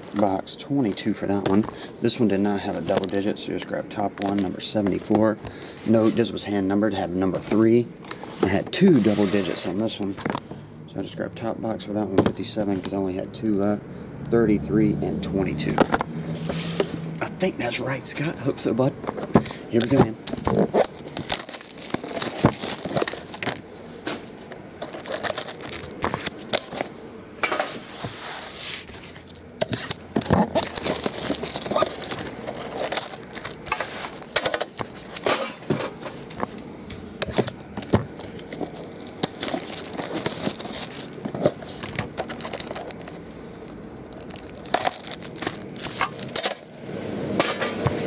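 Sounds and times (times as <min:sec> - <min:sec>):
plastic wrap crinkling and tearing: 0:00.0 - 0:01.7, 0:19.8 - 0:23.6, 0:24.8 - 0:26.8, 0:27.6 - 0:35.2, 0:37.2 - 0:46.7.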